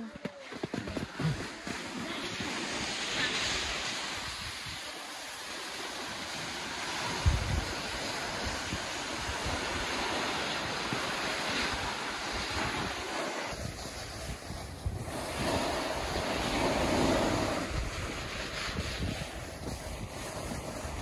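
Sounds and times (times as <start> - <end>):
wind buffeting microphone: 0.6 - 21.0.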